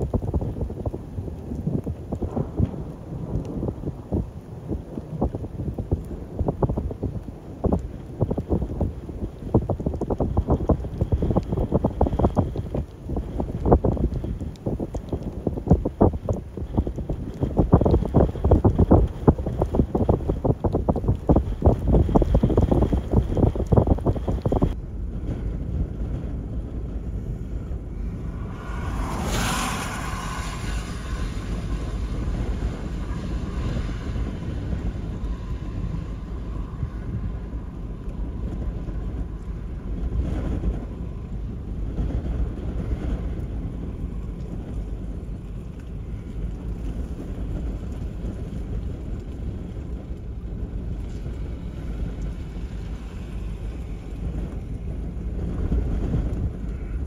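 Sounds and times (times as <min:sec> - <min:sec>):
wind buffeting microphone: 0:00.0 - 0:57.0
car tyres hissing on wet road: 0:27.1 - 0:57.0.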